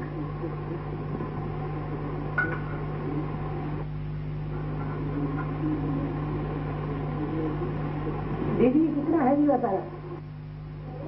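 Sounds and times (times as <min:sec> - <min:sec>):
faint murmur: 0:00.0 - 0:11.0
low electrical hum: 0:00.0 - 0:11.0.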